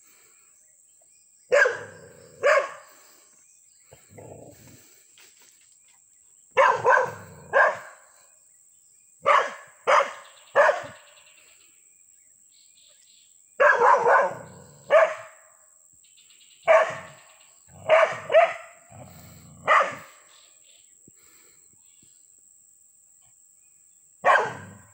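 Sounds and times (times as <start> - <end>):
small dog barking: 1.5 - 2.8, 6.6 - 8.0, 9.2 - 11.0, 13.6 - 15.4, 16.7 - 18.7, 19.6 - 20.2, 24.2 - 24.9.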